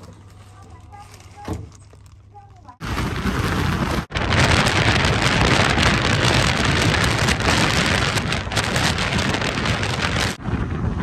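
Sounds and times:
road rumble: 0:00.0 - 0:11.0
wind rushing on microphone: 0:02.8 - 0:11.0.

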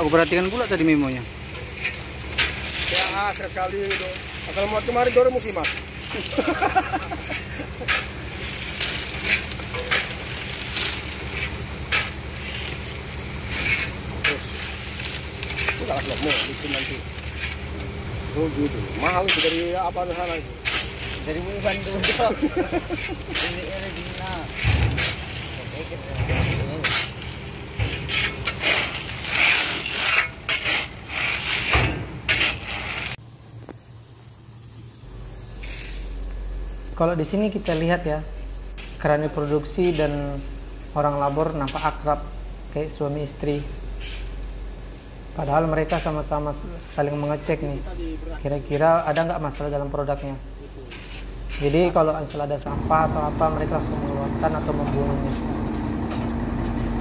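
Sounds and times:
low steady hum: 0:00.0 - 0:31.6, 0:32.2 - 0:57.0
kernels pouring onto a heap: 0:00.0 - 0:33.2
metal shovel scraping kernels: 0:00.0 - 0:33.2, 0:35.6 - 0:36.2, 0:38.8 - 0:42.1, 0:43.4 - 0:44.4, 0:45.4 - 0:52.4
nuts pouring into a truck bed: 0:19.1 - 0:33.2.

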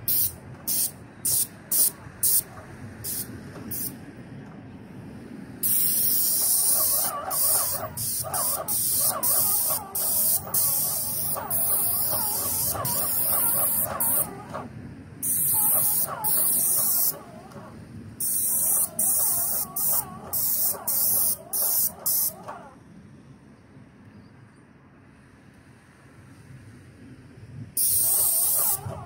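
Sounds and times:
paint spray gun hissing: 0:00.1 - 0:04.0, 0:05.6 - 0:14.4, 0:15.2 - 0:17.4, 0:18.2 - 0:22.4, 0:27.8 - 0:29.0.

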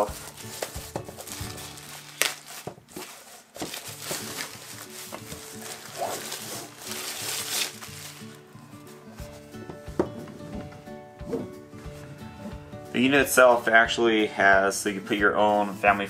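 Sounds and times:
wrapping tearing and crinkling: 0:00.0 - 0:08.6.

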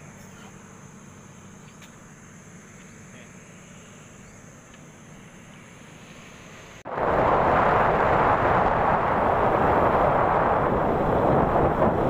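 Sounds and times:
high insect drone: 0:00.0 - 0:06.8
motorcycle engine at speed: 0:00.0 - 0:12.0
wind rush: 0:06.8 - 0:12.0.

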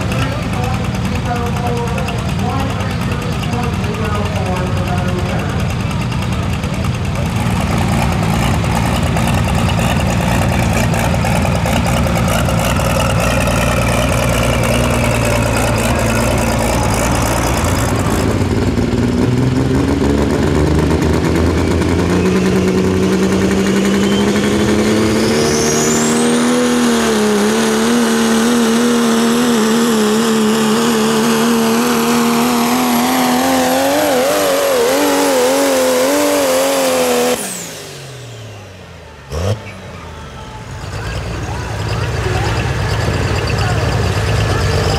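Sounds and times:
turbocharged engine rumbling: 0:00.0 - 0:44.9
turbo whine: 0:20.8 - 0:44.9.

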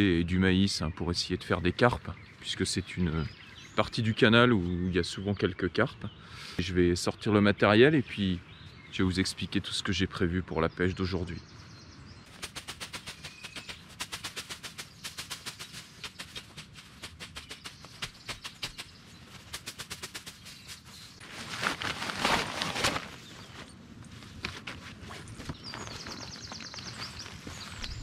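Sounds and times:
rustling scraping noise: 0:12.3 - 0:28.0.

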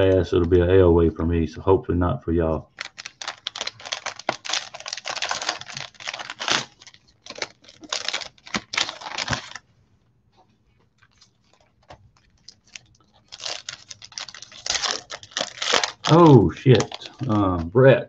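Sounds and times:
wrapper crinkling: 0:02.7 - 0:09.7, 0:10.7 - 0:17.7.

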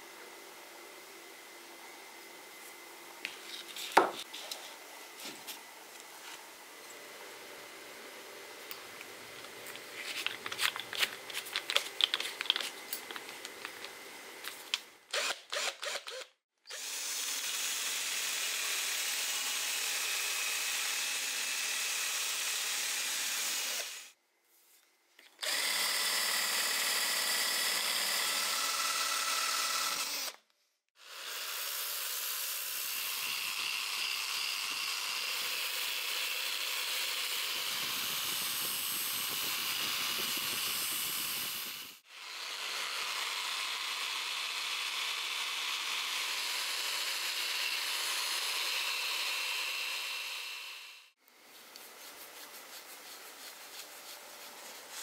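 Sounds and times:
clicks and rattles of handling: 0:09.4 - 0:14.8
rotary wire brush scrubbing: 0:51.4 - 0:55.0.

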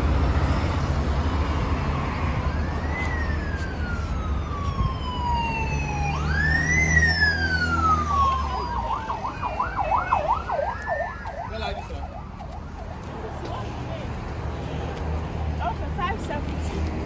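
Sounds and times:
siren wailing and yelping: 0:02.4 - 0:13.0.

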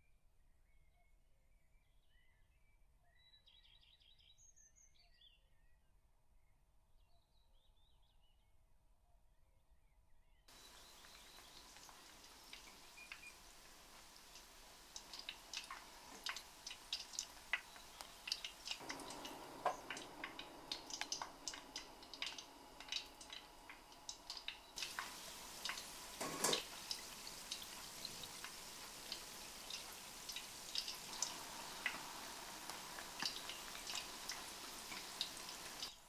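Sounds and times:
food deep-frying in oil: 0:10.5 - 0:36.0
crackling pops of oil: 0:10.6 - 0:36.0.

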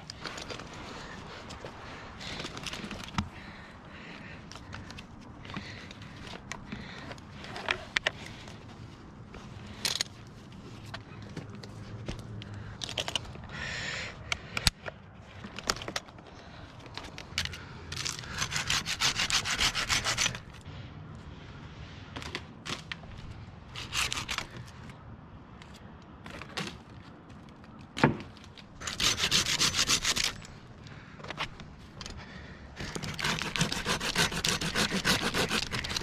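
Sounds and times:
saw rasping through tree limb: 0:18.0 - 0:20.6, 0:23.7 - 0:24.7, 0:28.8 - 0:30.6, 0:32.8 - 0:36.0.

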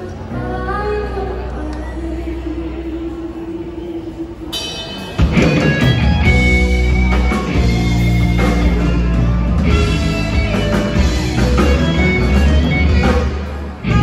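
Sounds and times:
keyboard: 0:00.0 - 0:14.0
drum kit: 0:04.6 - 0:14.0
electric guitars: 0:04.7 - 0:14.0
bass guitar: 0:05.2 - 0:14.0.

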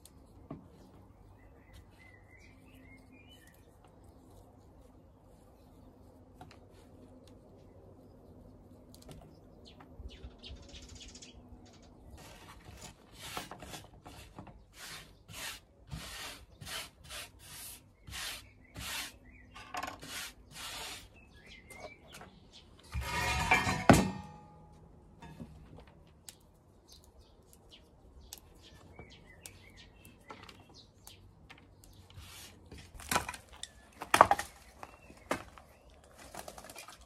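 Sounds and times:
metal bowl scraping on table: 0:22.9 - 0:24.1
metal bowl clank: 0:23.0 - 0:24.6.

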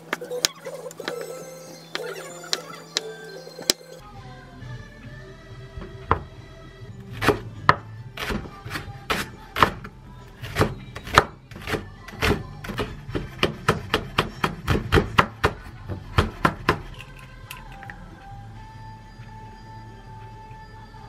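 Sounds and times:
trot music: 0:00.0 - 0:20.2
knife chopping on wooden board: 0:07.2 - 0:16.9.

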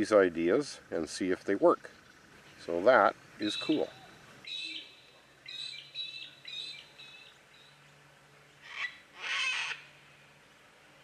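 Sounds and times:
cockatoos calling: 0:01.8 - 0:07.8, 0:08.6 - 0:10.0
harsh cockatoo screeches: 0:08.6 - 0:09.9.

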